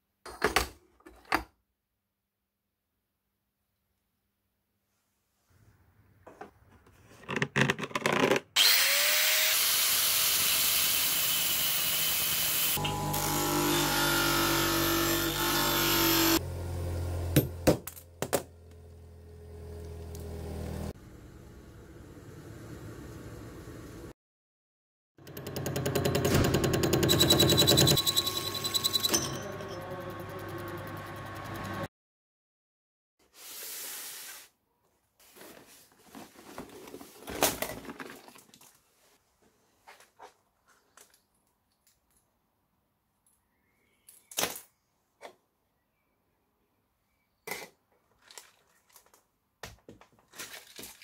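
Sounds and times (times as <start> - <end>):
bench grinder grinding metal: 8.6 - 16.4
cardboard box rustling and scraping: 35.2 - 38.1.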